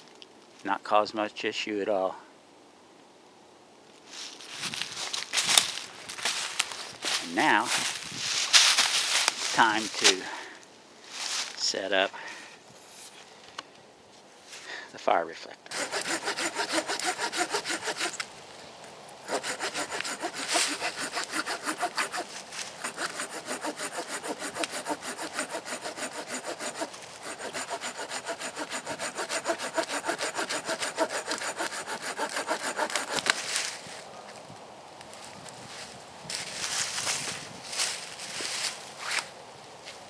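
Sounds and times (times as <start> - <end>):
hand saw cutting log: 15.7 - 18.2, 19.2 - 33.4.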